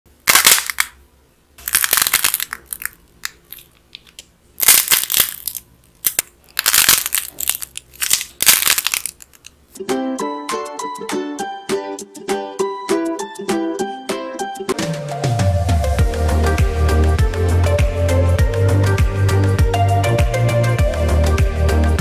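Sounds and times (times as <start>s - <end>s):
hardened clay crackling and crunching: 0.1s - 1.0s, 1.6s - 9.6s.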